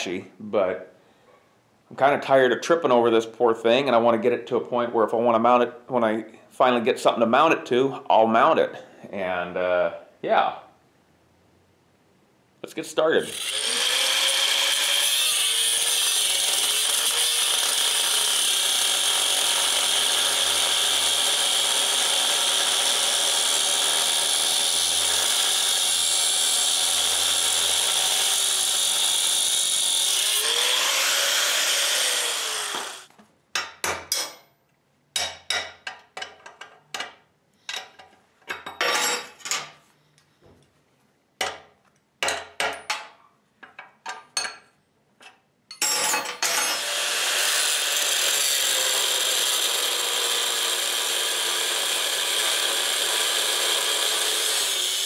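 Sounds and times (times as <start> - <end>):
grinder cutting metal: 13.2 - 33.1, 45.8 - 55.0
sharp metal knocks: 41.4 - 43.2.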